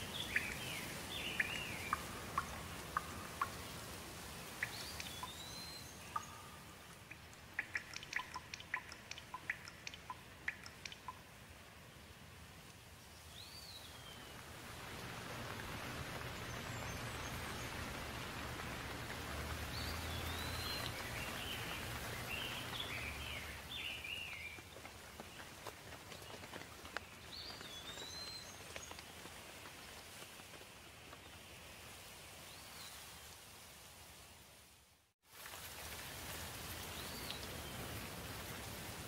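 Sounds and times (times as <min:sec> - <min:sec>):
songbird chirping: 0:00.0 - 0:29.2
steady rain: 0:00.0 - 0:39.0.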